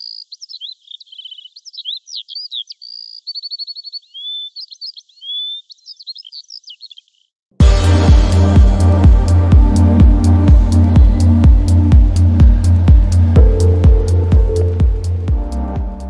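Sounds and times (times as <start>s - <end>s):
birds singing: 0.0s - 7.4s.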